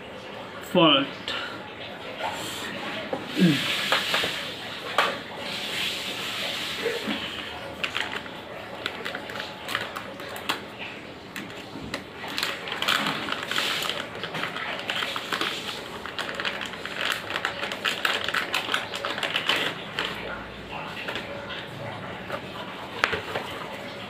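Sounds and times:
cable rustling: 0:07.8 - 0:10.6, 0:11.4 - 0:21.4.

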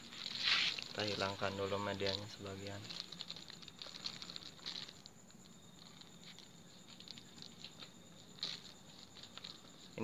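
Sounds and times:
falling soil patter: 0:00.0 - 0:10.0.

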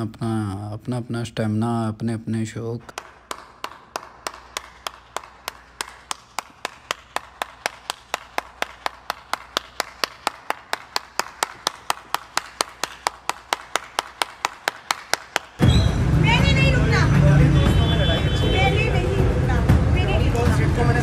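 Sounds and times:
person clapping hands: 0:02.9 - 0:15.6.

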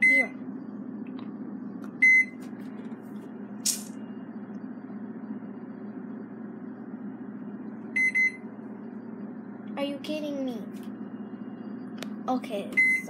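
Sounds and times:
microwave keypad beeps: 0:00.0 - 0:00.4, 0:02.0 - 0:02.4, 0:07.9 - 0:08.4, 0:12.7 - 0:13.0
low hum: 0:00.0 - 0:13.0.

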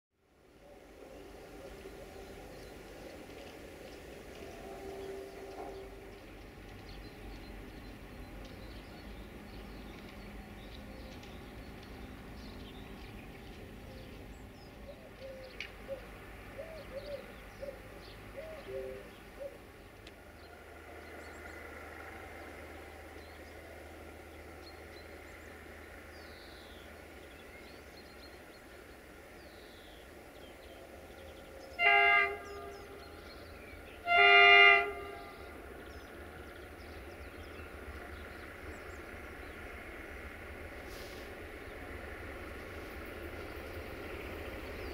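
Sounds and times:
diesel engine rumbling: 0:00.8 - 0:44.9
birds chirping: 0:01.0 - 0:44.9
locomotive horn blasts: 0:04.3 - 0:06.3, 0:31.8 - 0:35.7.

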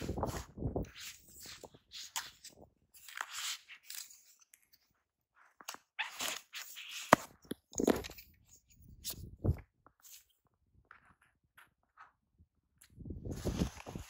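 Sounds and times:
camera gear rustling and clicking: 0:05.6 - 0:10.3.

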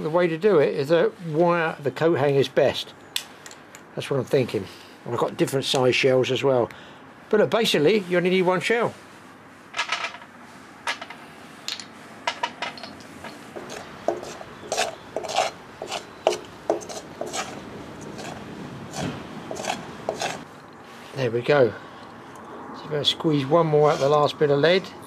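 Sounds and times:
metal scraping pot of lead: 0:12.8 - 0:20.5.

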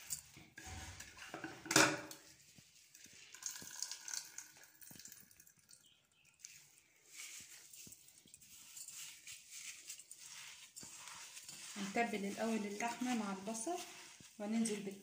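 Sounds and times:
water dripping: 0:02.9 - 0:06.8.

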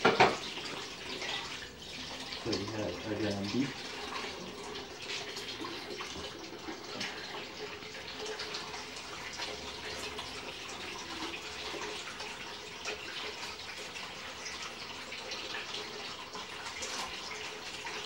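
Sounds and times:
tap water splashing into container: 0:00.0 - 0:00.7, 0:05.0 - 0:10.4.

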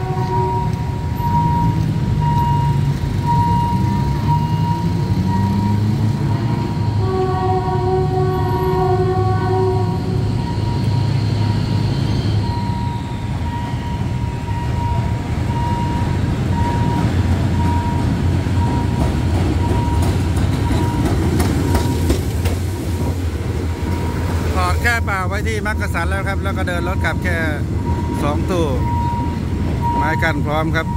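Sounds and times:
level crossing warning signal: 0:00.0 - 0:22.2, 0:23.7 - 0:30.9
locomotive engine rumble: 0:00.0 - 0:30.9
train wheels clacking on rails: 0:15.6 - 0:25.2.

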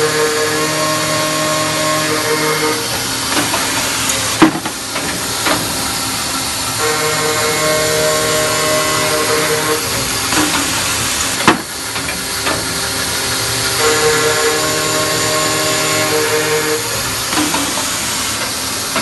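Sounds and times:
cold saw blade whine: 0:00.0 - 0:19.0
metal knocks and clank: 0:04.4 - 0:05.9.

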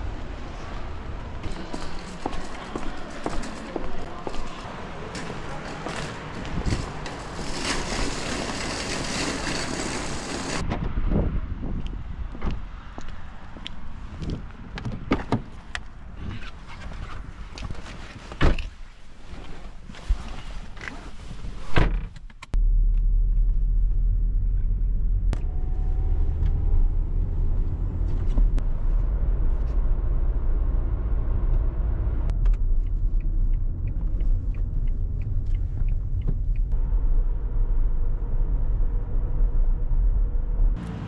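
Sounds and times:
car driving rumble from inside: 0:22.5 - 0:41.0.

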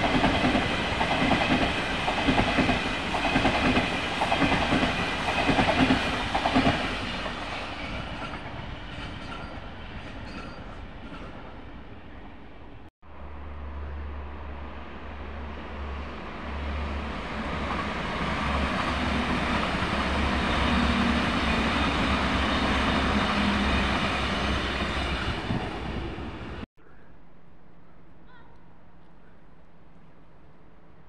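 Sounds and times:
train wheel and rail noise: 0:00.0 - 0:26.7
diesel train engines droning: 0:13.1 - 0:26.7.

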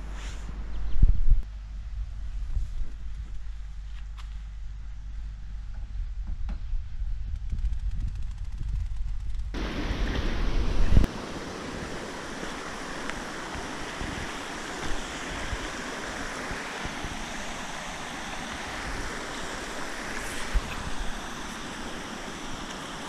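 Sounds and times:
wind buffeting microphone: 0:06.0 - 0:23.0
water rushing: 0:09.6 - 0:23.0.

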